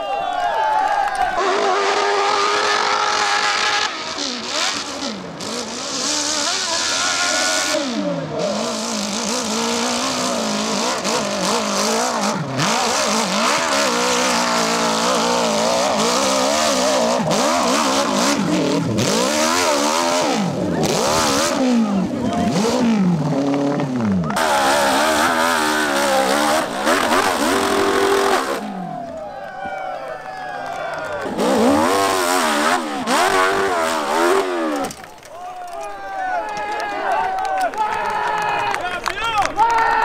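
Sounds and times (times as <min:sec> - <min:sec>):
dirt bike engine revving: 0:01.4 - 0:29.0, 0:31.2 - 0:35.1.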